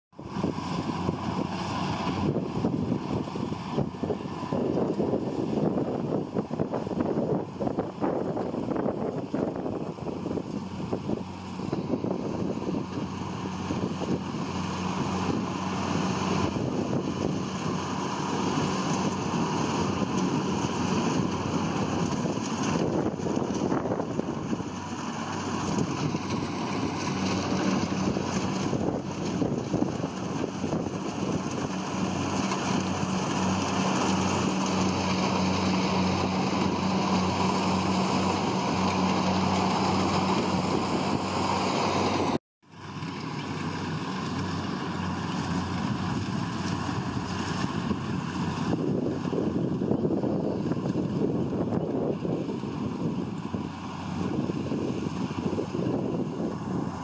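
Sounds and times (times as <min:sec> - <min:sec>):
diesel engine hum: 0:00.2 - 0:57.0
mechanical rattle of threshing: 0:10.4 - 0:42.1.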